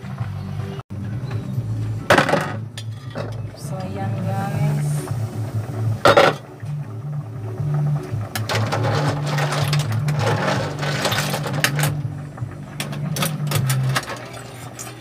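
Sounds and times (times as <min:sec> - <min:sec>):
metal ladle scraping a pot: 0:08.4 - 0:12.0, 0:12.8 - 0:15.0.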